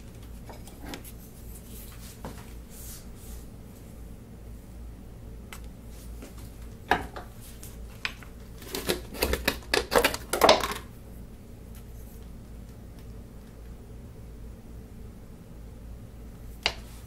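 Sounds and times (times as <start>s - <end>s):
wood strips clicking and knocking: 8.0s - 10.9s.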